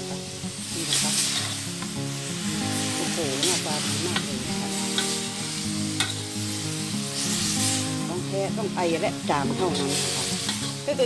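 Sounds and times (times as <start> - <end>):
background music with held notes: 0.0 - 11.0
food sizzling in a wok: 0.0 - 11.0
metal spatula scraping a pan: 2.8 - 8.1, 9.4 - 10.9.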